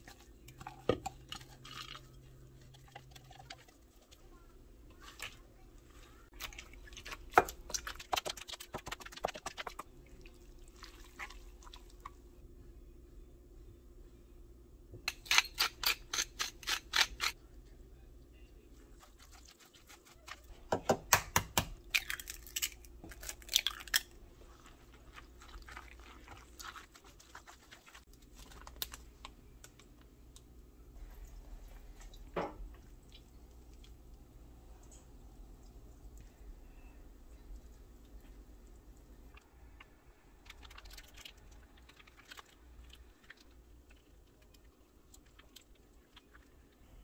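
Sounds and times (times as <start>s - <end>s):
kitchen utensils clicking and knocking: 15.1s - 17.4s.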